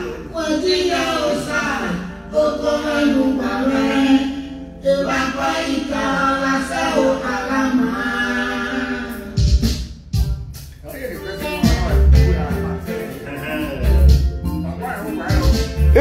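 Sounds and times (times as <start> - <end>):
person singing a chant: 11.8 - 14.1.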